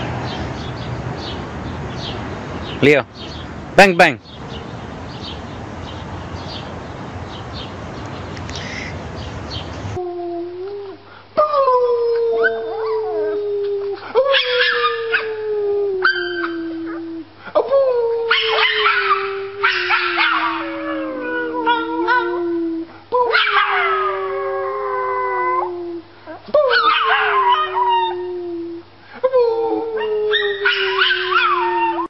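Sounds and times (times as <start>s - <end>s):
man howling: 10.0s - 32.0s
small dog howling: 10.8s - 17.3s, 18.0s - 26.0s, 26.6s - 28.8s, 29.4s - 32.0s.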